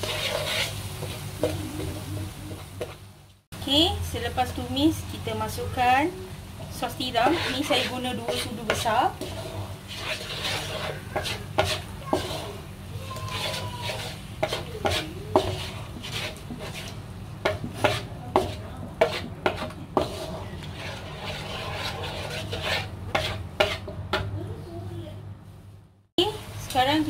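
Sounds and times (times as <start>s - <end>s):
spatula scraping a wok: 0.0s - 3.1s, 5.2s - 24.3s
light sizzle of frying: 0.0s - 27.0s
spatula knocking on pan: 13.2s - 20.3s.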